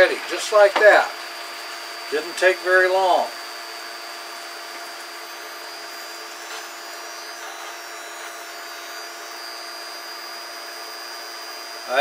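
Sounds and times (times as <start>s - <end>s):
humming or buzzing: 1.4s - 12.0s
faint high whine: 2.0s - 12.0s.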